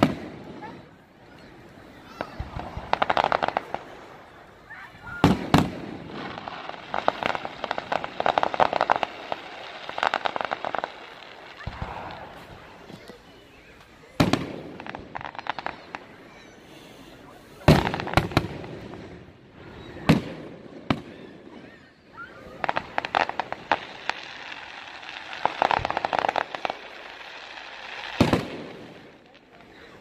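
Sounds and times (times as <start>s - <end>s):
firework booms: 0.0s - 0.9s, 2.1s - 4.2s, 5.0s - 13.0s, 14.1s - 16.0s, 17.6s - 21.7s, 28.0s - 29.2s
firework crackling: 0.0s - 21.1s, 22.1s - 30.0s.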